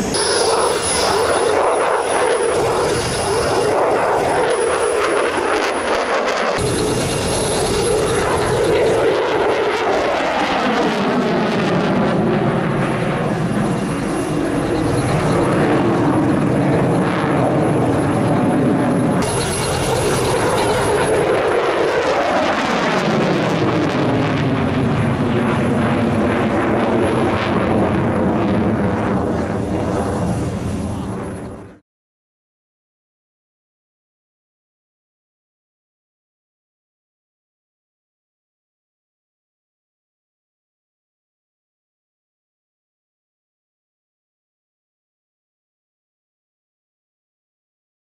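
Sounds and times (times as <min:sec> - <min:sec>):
jet flying past: 0:00.0 - 0:31.8.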